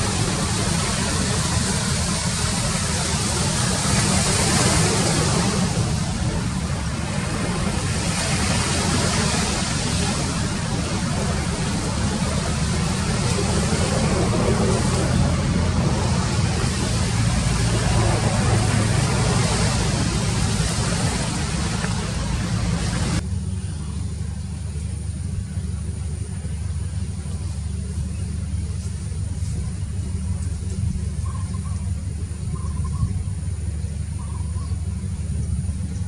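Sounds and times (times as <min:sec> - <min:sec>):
low engine rumble: 0:00.0 - 0:36.0.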